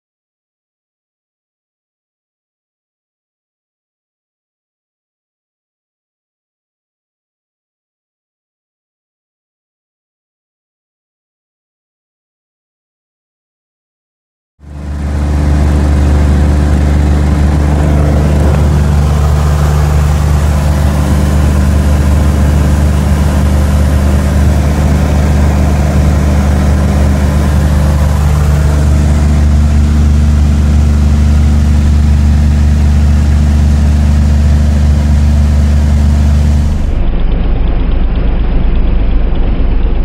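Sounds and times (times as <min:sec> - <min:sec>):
propeller plane engine running: 0:14.6 - 0:40.0.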